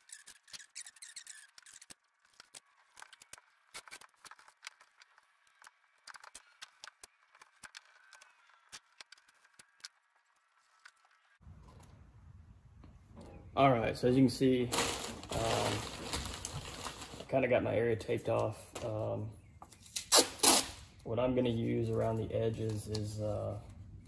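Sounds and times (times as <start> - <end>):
masking tape crackling: 0.0 - 12.0.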